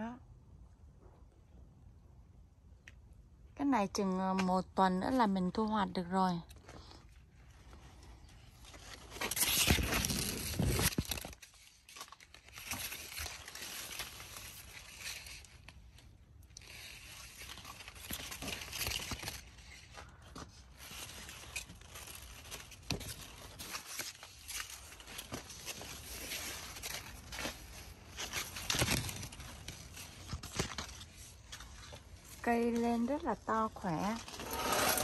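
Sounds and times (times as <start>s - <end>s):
corn leaves rustling: 7.5s - 35.0s.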